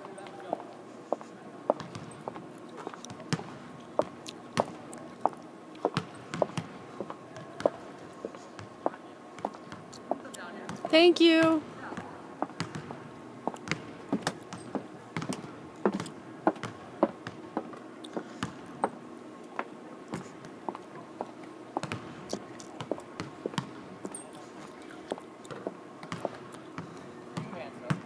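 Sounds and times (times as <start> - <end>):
faint steady hum: 0.0 - 28.0
basketballs bouncing on hardwood: 1.8 - 2.2, 5.9 - 6.8, 11.4 - 13.0, 13.6 - 17.4, 18.2 - 18.9, 21.8 - 22.1.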